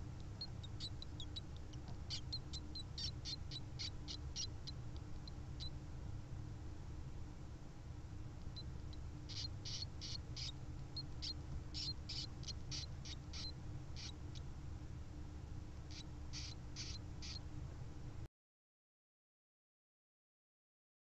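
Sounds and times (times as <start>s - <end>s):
hamster pups squeaking: 0.0s - 5.8s, 8.4s - 14.5s, 15.8s - 17.5s
steady low hum: 0.0s - 18.3s.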